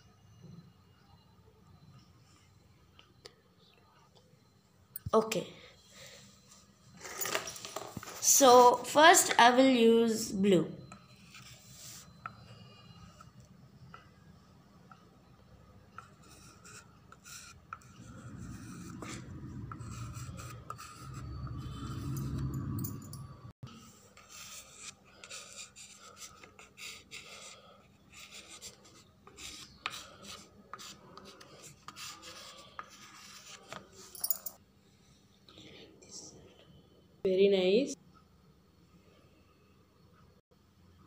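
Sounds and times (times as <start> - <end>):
low rumble: 18.0 - 23.6.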